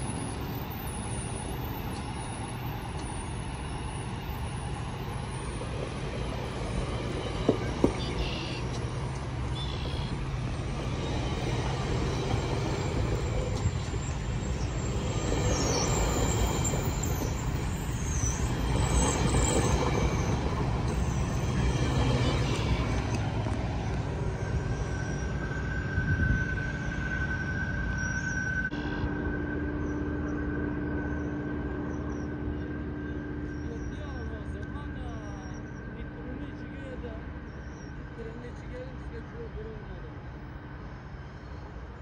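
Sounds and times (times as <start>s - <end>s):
train wheels rumbling on rail: 0.0s - 42.0s
high-pitched wheel squeal: 7.8s - 8.7s, 10.8s - 23.3s, 24.3s - 34.0s.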